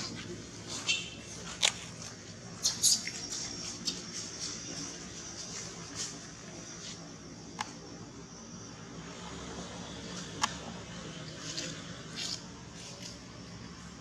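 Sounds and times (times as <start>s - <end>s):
baby monkey squeaking: 2.6s - 3.4s.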